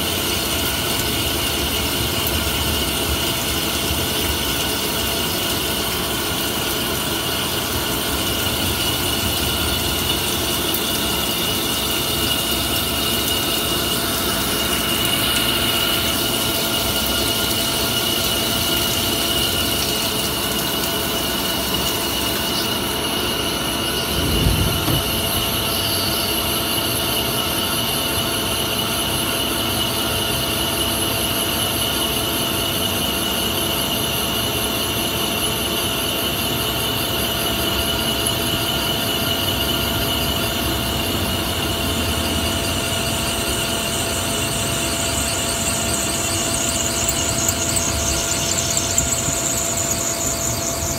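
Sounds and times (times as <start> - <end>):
coolant spraying: 0.0 - 27.8, 36.8 - 50.9
lathe spindle turning: 0.0 - 28.0, 35.1 - 50.9
steady high whine: 0.0 - 28.9, 35.2 - 50.9.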